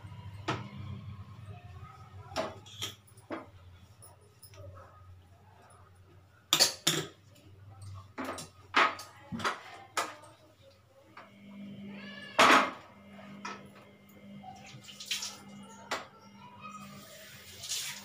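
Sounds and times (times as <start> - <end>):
kitchenware clinking and knocking: 6.5 - 7.2.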